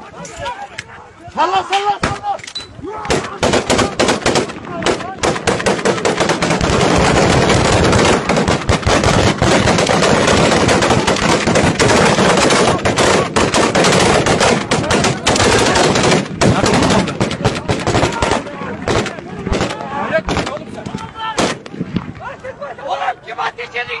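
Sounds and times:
rapid automatic rifle fire: 0:03.1 - 0:20.5.

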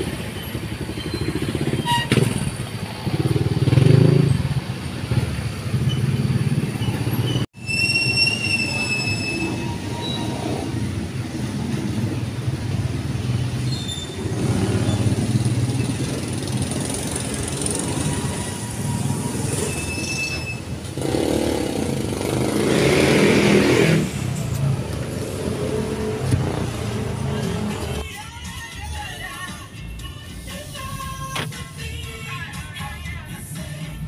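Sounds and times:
traffic rumble: 0:00.0 - 0:28.3
vehicle passing: 0:21.0 - 0:28.0.

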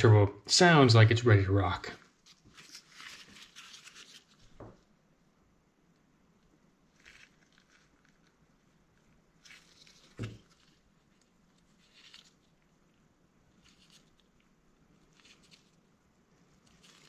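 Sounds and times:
gloved hands rustling: 0:02.1 - 0:04.9, 0:06.9 - 0:17.0.

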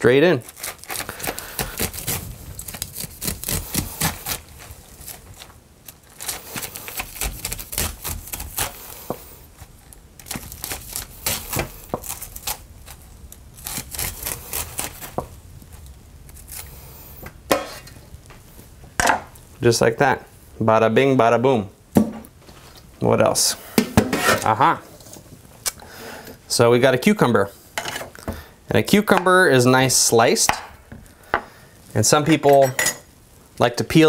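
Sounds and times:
knife cutting corn kernels: 0:00.4 - 0:04.5.

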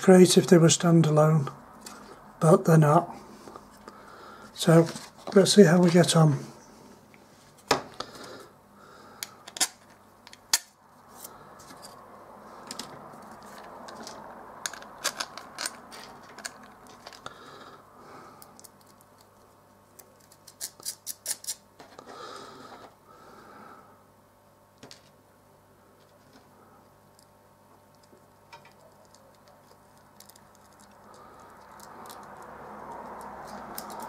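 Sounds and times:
soft rustle of handling: 0:04.6 - 0:06.2.

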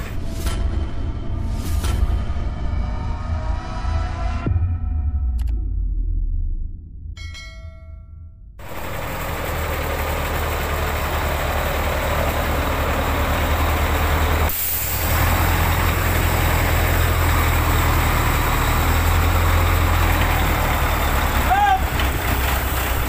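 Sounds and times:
diesel engine idling: 0:08.6 - 0:23.0.

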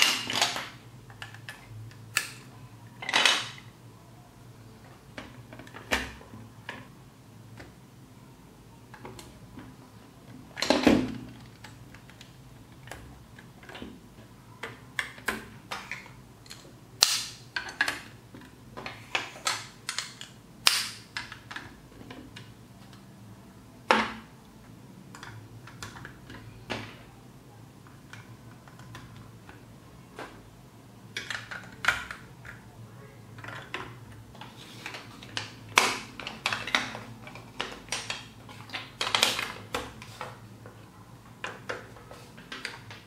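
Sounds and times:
plastic blocks snapping: 0:14.6 - 0:18.2, 0:18.8 - 0:21.8, 0:34.8 - 0:40.0
plastic blocks clicking: 0:31.1 - 0:32.6, 0:33.4 - 0:40.4.

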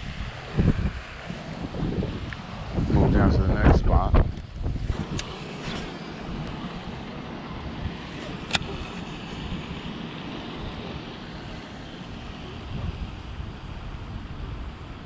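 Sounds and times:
wind buffeting microphone: 0:00.0 - 0:15.0
sharp click: 0:05.1 - 0:06.6, 0:08.3 - 0:09.1.

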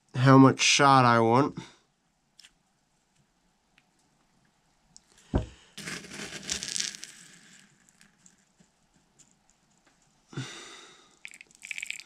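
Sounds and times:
shot pellets rattling: 0:05.8 - 0:08.4.

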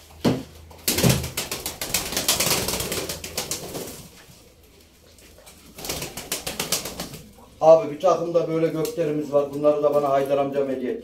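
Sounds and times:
pigeons flapping wings: 0:00.8 - 0:04.2, 0:05.4 - 0:07.4.

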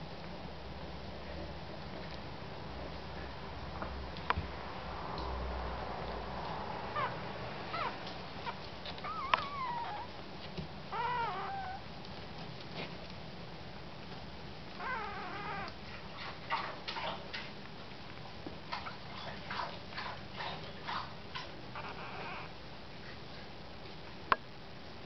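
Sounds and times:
puppies squeaking and whimpering: 0:06.9 - 0:10.2, 0:10.9 - 0:11.8, 0:14.8 - 0:17.2, 0:21.7 - 0:22.5.

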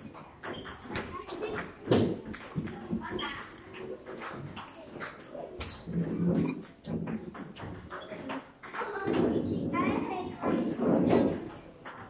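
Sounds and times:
table tennis balls clicking: 0:00.0 - 0:12.0.

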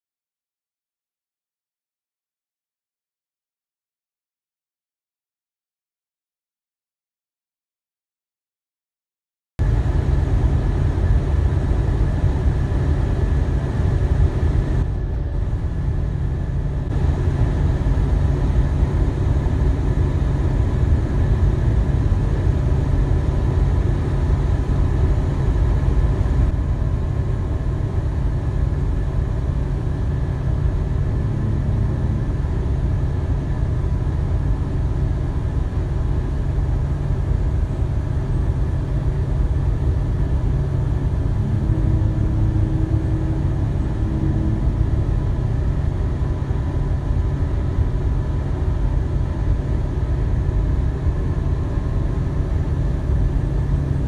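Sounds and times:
road and engine rumble: 0:09.6 - 0:54.0.

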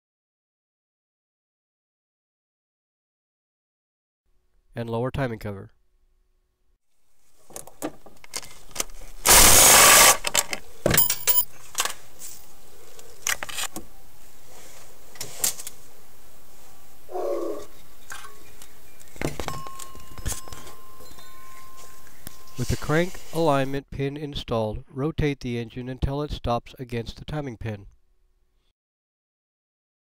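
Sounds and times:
loud burst of noise: 0:09.2 - 0:10.3
metal tools clinking: 0:10.3 - 0:12.4, 0:19.3 - 0:22.6.

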